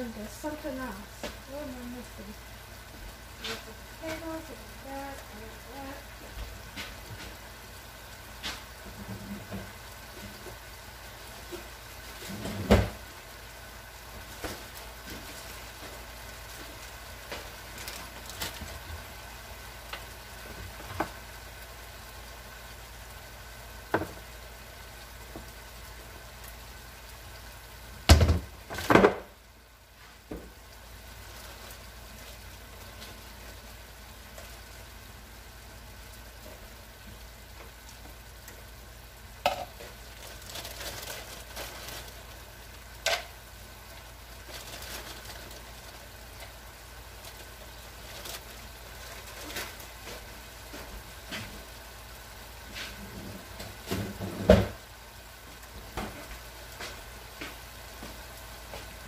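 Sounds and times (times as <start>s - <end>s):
steady background hiss: 0.0s - 59.0s
kitchen items knocking and clattering: 28.1s - 29.3s, 39.4s - 39.8s, 53.8s - 54.8s.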